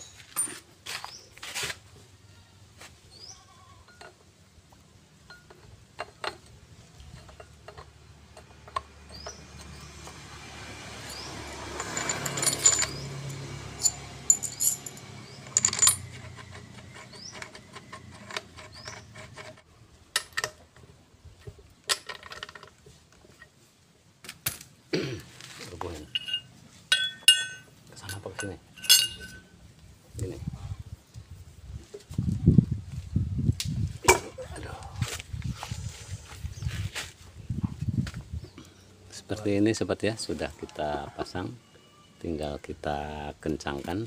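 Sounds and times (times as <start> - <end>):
metallic clinks and knocks: 5.2 - 10.2, 10.9 - 20.8, 25.9 - 29.6.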